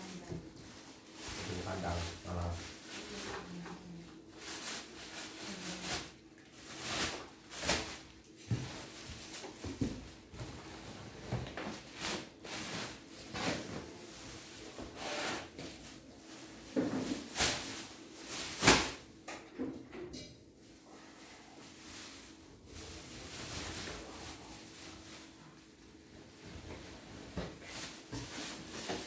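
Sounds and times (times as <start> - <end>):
plastic wrapping crinkling: 0.0 - 14.6.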